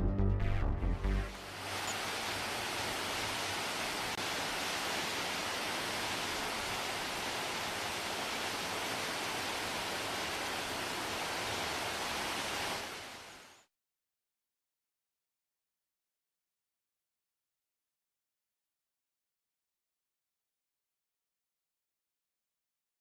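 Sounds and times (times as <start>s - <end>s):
waterfall rushing over rock: 1.4s - 13.6s.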